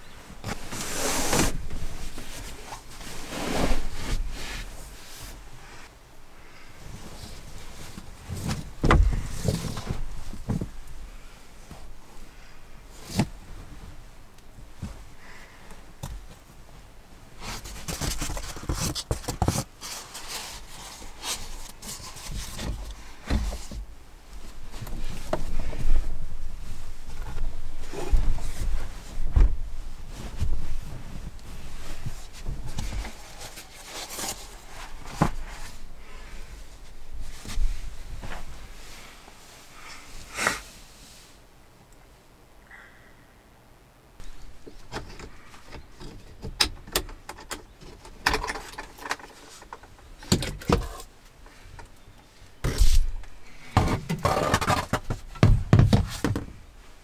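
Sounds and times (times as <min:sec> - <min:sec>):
blanket and foam mat rubbing: 0:00.6 - 0:05.9
knocks against wood: 0:53.8 - 0:56.5.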